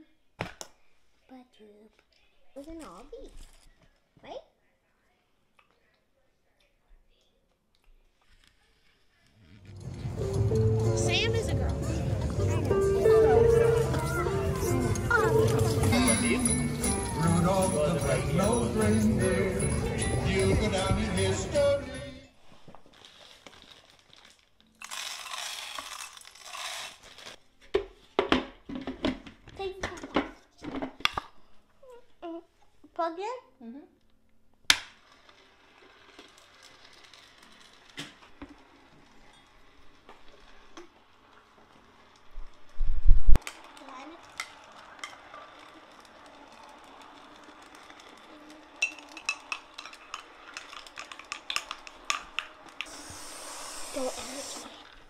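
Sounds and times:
popcorn kernels poured onto metal: 23.0s - 27.4s, 35.0s - 42.8s, 43.4s - 55.0s.

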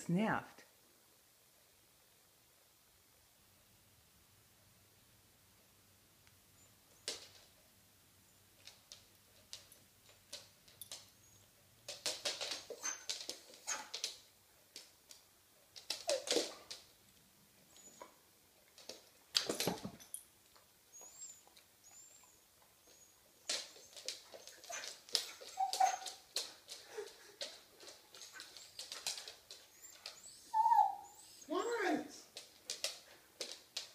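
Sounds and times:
dogs scuffling: 8.4s - 33.9s
dog whimpers: 20.9s - 27.3s, 28.2s - 31.5s.

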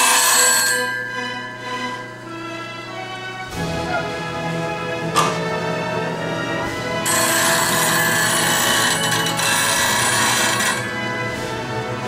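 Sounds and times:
bench grinder grinding hiss: 6.7s - 11.0s.

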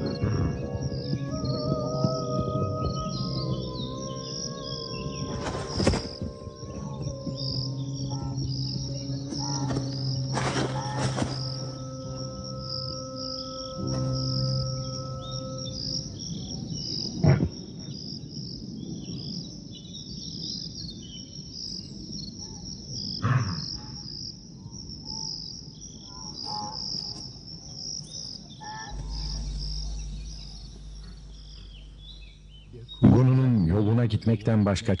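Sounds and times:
low hum: 0.0s - 17.3s, 28.5s - 34.4s
insects chirping: 0.0s - 35.0s.

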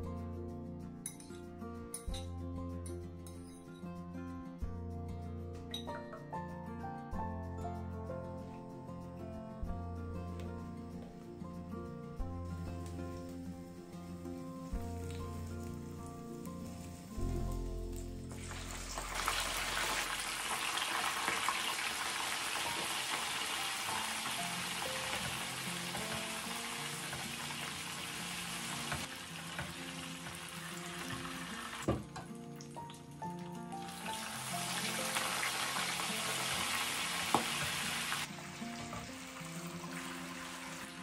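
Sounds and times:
prawns sizzling in hot oil: 12.8s - 41.0s.

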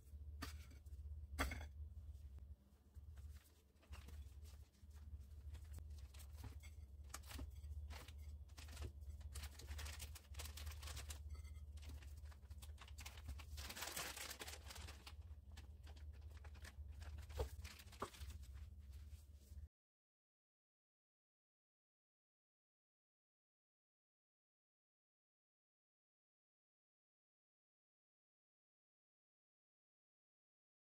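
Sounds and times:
low steady hum: 0.0s - 19.7s
plastic bags crinkling: 7.1s - 18.6s.

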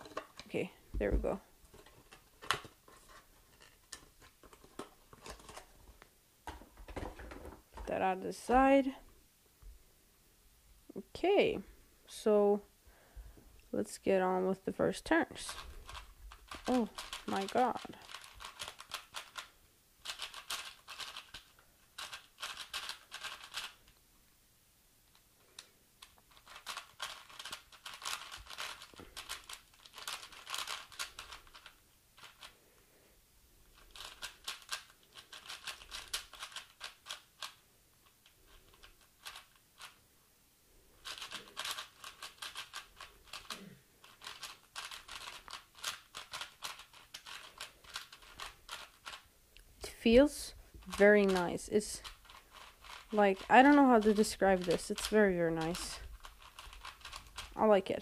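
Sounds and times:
puzzle cube clicking: 15.5s - 23.9s, 25.1s - 32.5s, 33.8s - 40.0s, 41.0s - 49.2s, 50.8s - 57.6s.

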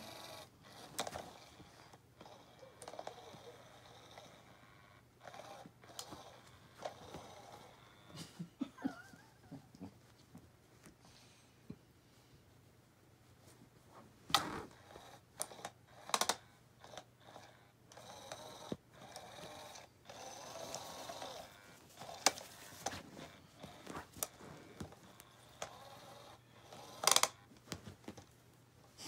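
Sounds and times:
toy motor whirring: 0.0s - 8.1s, 14.7s - 27.5s.

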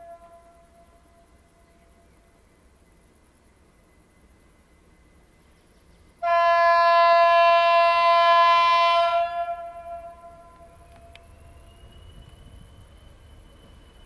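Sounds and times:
locomotive horn blast: 6.2s - 11.1s.

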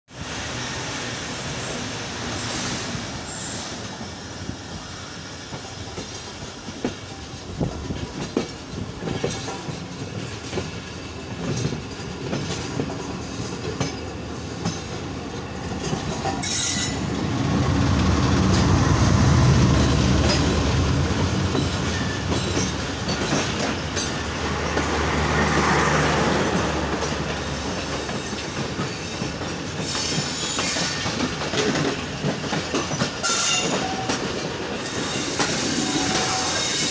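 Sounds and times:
diesel locomotive engine: 0.1s - 36.9s
wheels clicking over rail joints: 5.5s - 17.1s, 18.1s - 36.9s
wheel squeal: 16.4s - 17.1s, 28.9s - 31.1s, 34.8s - 36.9s.

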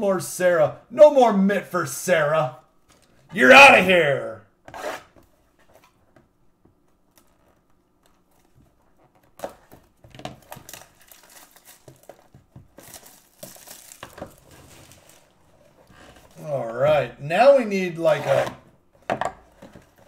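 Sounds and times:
plastic shrink wrap crinkling: 7.1s - 16.4s.

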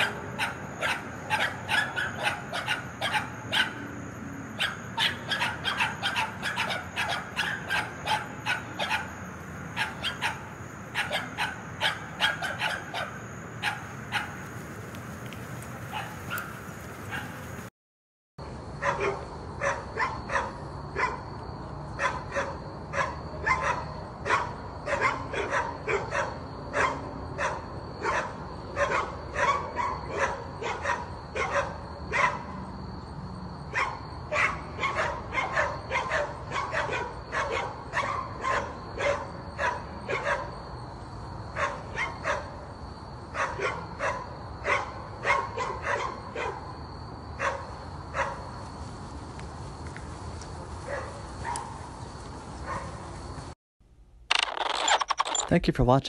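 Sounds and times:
dog barking: 0.0s - 3.9s, 4.5s - 14.4s, 15.9s - 17.4s, 18.8s - 21.2s, 22.0s - 32.5s, 33.7s - 40.5s, 41.6s - 42.6s, 43.3s - 46.7s, 47.4s - 48.5s, 50.8s - 51.8s, 52.6s - 53.0s.

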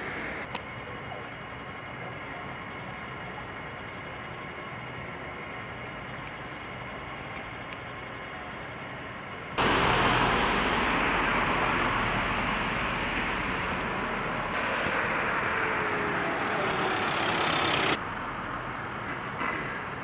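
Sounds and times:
motor vehicle rushing noise: 9.6s - 18.0s.

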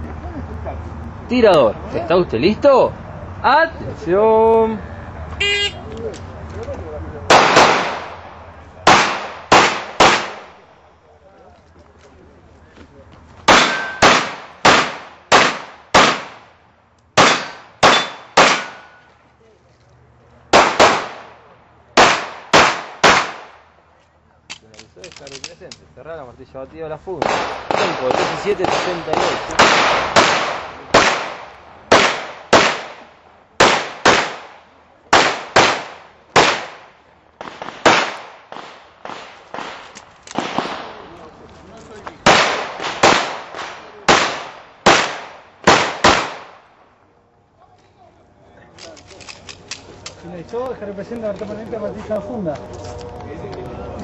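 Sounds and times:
handgun shots with echo: 13.5s - 16.4s, 17.2s - 19.0s.

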